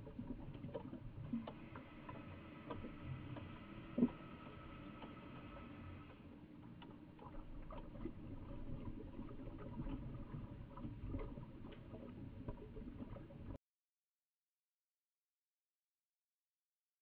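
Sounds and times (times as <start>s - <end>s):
crackling clicks: 0.0s - 5.2s, 6.1s - 13.6s
underwater low rumble: 0.0s - 13.6s.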